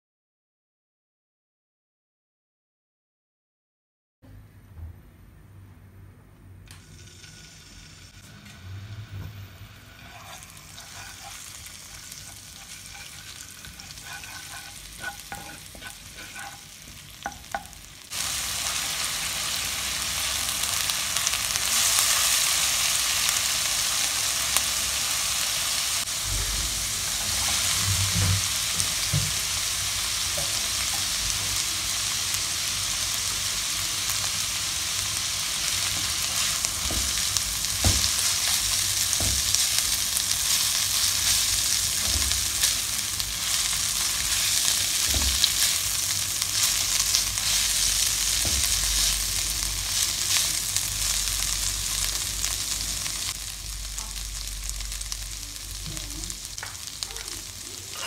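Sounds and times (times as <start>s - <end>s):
food sizzling in hot oil: 6.8s - 58.0s
spatula knocking and scraping pan: 10.0s - 17.8s, 27.1s - 29.5s, 35.9s - 39.8s, 43.4s - 49.3s.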